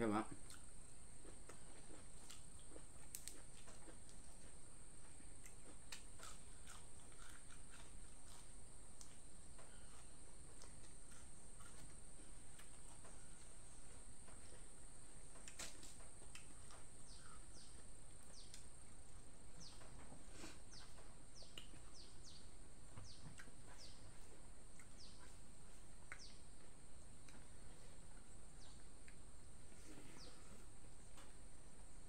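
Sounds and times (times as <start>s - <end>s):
birds chirping: 16.7s - 18.7s, 19.5s - 25.4s, 26.1s - 26.5s, 29.8s - 30.7s.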